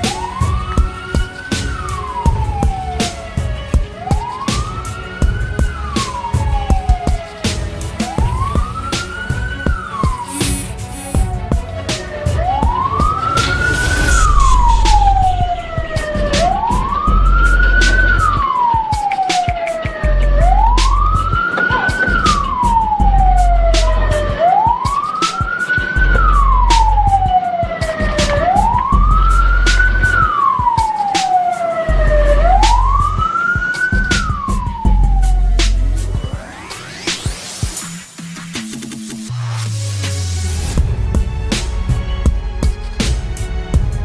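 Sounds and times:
emergency siren wailing: 0.0 - 37.8
low rumble: 10.5 - 18.4.

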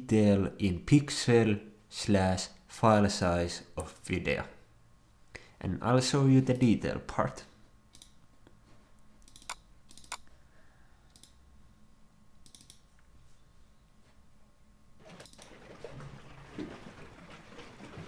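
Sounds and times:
computer mouse clicks: 7.9 - 8.2, 9.2 - 10.3, 11.1 - 11.4, 12.4 - 13.1.

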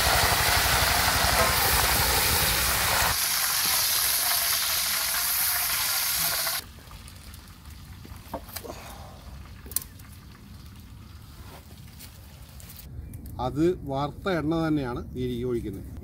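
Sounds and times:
meat sizzling in hot oil: 0.0 - 7.8.

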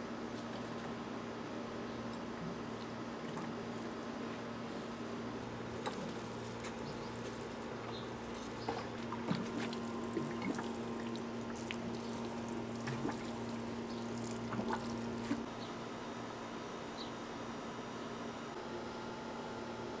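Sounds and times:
water drips and splashes: 5.8 - 15.5
water pouring onto soil: 5.8 - 15.5.

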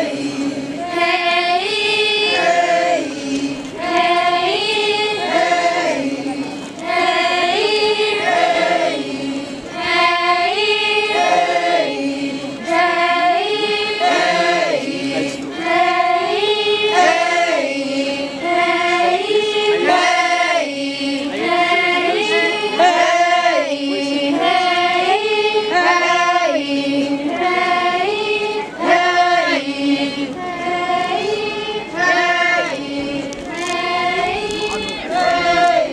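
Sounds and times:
young voices chanting in unison: 0.0 - 35.9.

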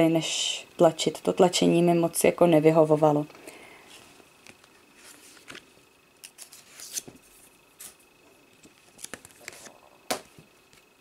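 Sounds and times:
book pages flipping: 4.4 - 10.9.

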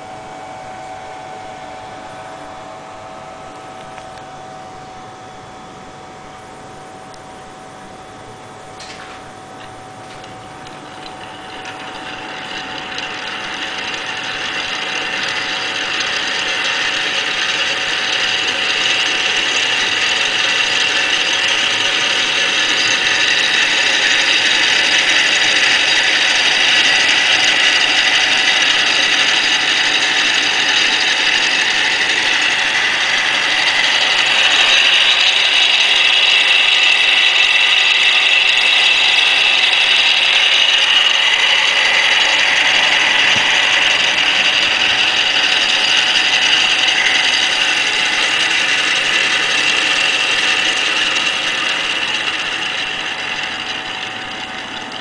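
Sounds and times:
rollers spinning: 8.7 - 55.0.

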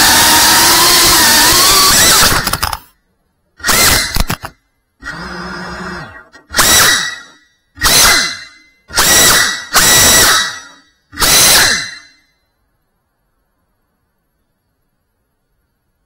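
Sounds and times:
drone motors whining: 0.0 - 2.8, 3.6 - 12.2.

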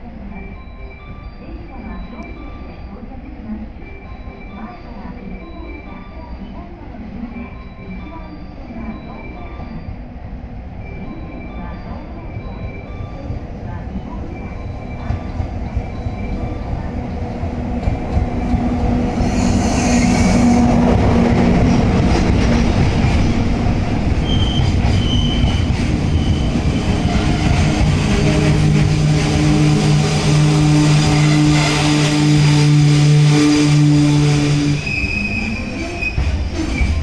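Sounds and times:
electric locomotive passing: 1.1 - 37.0.

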